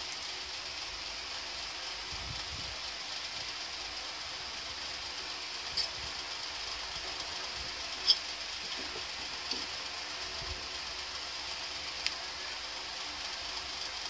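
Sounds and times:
steady background hiss: 0:00.0 - 0:14.0.

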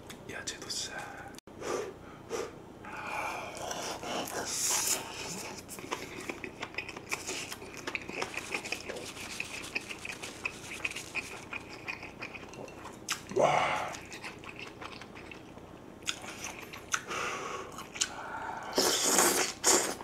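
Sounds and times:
wet chewing with mouth clicks: 0:03.5 - 0:17.1, 0:17.7 - 0:20.0
biting food: 0:05.3 - 0:17.1.

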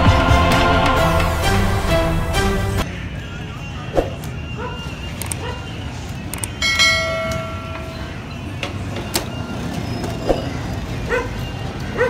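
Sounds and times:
market background noise: 0:02.8 - 0:12.0
dog yelping: 0:04.6 - 0:05.7, 0:11.1 - 0:12.0
ringing tone: 0:06.5 - 0:08.6.

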